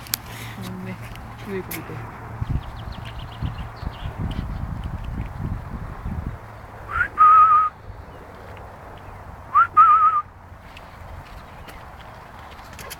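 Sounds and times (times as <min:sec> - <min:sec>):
person whistling to call dog: 0:06.9 - 0:07.7, 0:09.6 - 0:10.3.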